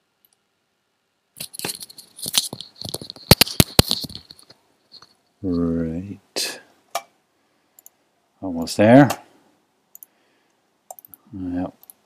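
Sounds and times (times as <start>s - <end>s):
small clicks and rattling: 1.4s - 5.2s.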